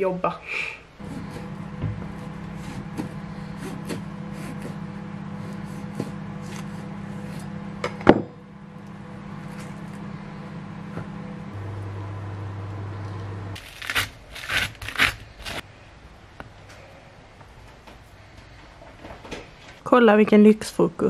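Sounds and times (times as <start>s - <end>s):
steady low hum: 0.8s - 14.0s.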